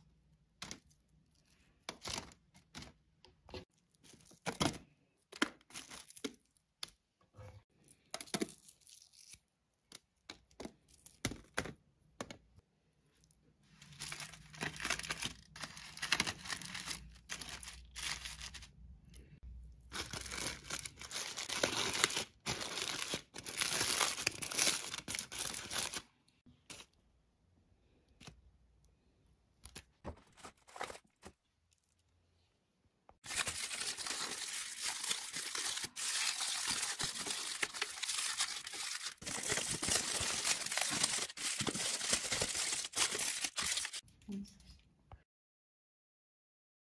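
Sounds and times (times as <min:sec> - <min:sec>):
aluminium foil crinkling: 0:13.8 - 0:26.1, 0:33.2 - 0:44.0.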